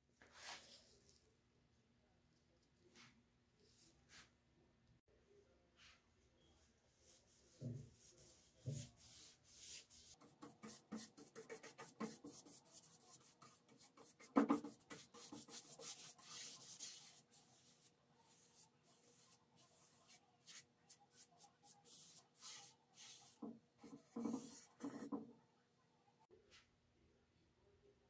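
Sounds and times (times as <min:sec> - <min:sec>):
paintbrush swishing on wood: 0:07.0 - 0:25.2.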